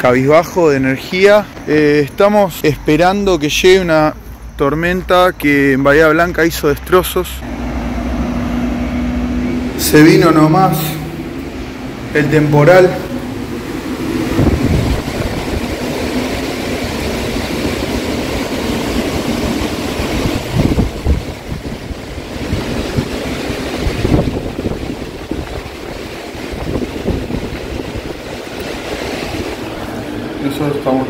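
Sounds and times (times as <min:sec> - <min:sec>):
wind gusting through trees: 0:07.4 - 0:31.0
wind rumble on microphone: 0:10.6 - 0:30.4.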